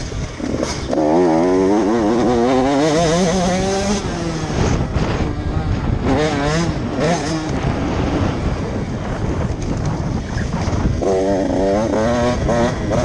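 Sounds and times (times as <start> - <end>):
motocross bike engine revving: 0.0 - 13.0.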